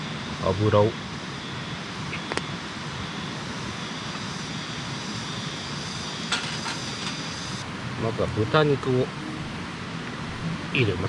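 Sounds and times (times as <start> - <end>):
steady outdoor rushing noise: 0.0 - 11.0
faint high steady tone: 3.0 - 11.0.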